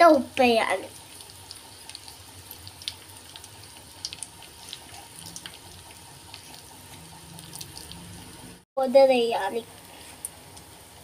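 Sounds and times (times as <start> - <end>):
oil sizzling in a pot: 0.0 - 11.0
small crackles and pops: 1.0 - 8.0, 9.7 - 10.8.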